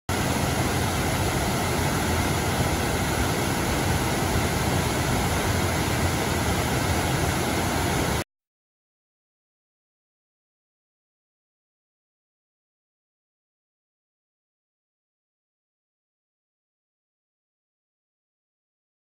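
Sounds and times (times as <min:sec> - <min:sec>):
water rushing down spillway: 0:00.1 - 0:08.2.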